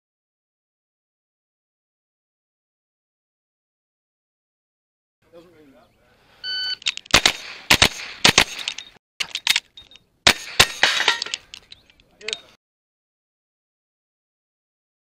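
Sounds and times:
carbine gunshots: 0:07.1 - 0:08.9, 0:10.2 - 0:11.3.

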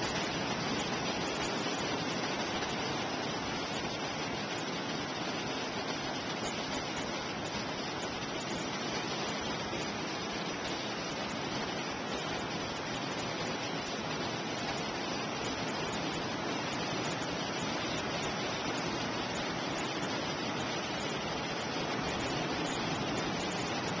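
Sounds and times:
ocean surf wash: 0:00.0 - 0:24.0.

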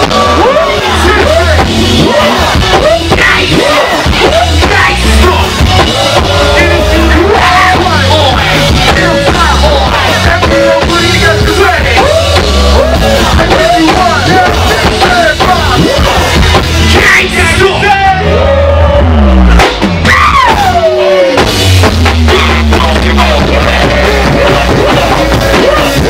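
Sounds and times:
vocalist yelling and singing: 0:00.0 - 0:21.6, 0:22.2 - 0:26.0
heavy bass line: 0:00.0 - 0:26.0
live band playing: 0:00.0 - 0:26.0
long falling shout: 0:20.0 - 0:21.4.

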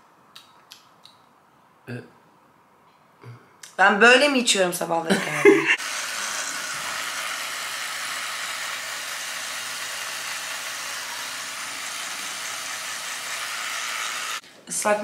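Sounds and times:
electric toothbrush buzzing: 0:05.7 - 0:14.4.

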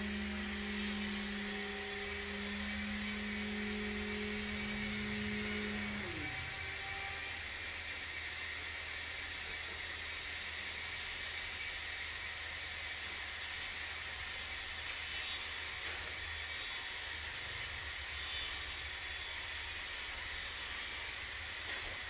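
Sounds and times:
low hum: 0:00.0 - 0:07.4
machinery whirring hiss: 0:00.0 - 0:22.0.

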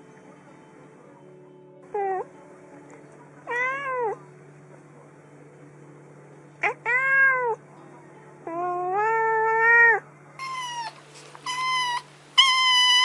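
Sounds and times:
adult cat meowing: 0:03.5 - 0:04.2, 0:06.6 - 0:07.6, 0:08.5 - 0:13.0
kitten meowing: 0:08.5 - 0:13.0.

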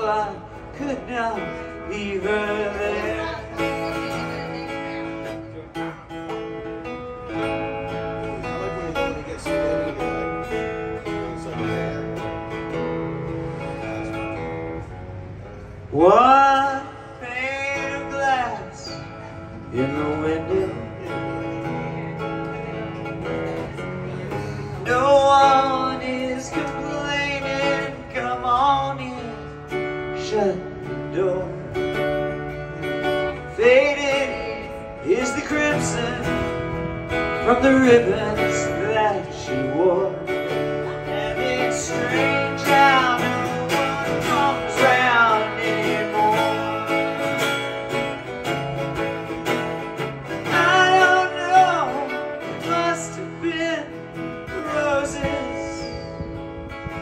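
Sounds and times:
person singing: 0:00.0 - 0:05.5, 0:37.4 - 0:48.2, 0:49.8 - 0:56.1
acoustic guitar: 0:00.0 - 0:57.0.

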